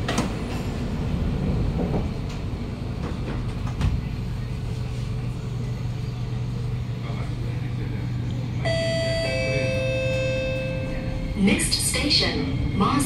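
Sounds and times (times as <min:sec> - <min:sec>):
train doors shutting: 0:00.0 - 0:04.6, 0:08.5 - 0:13.0
train motor hum: 0:00.0 - 0:13.0.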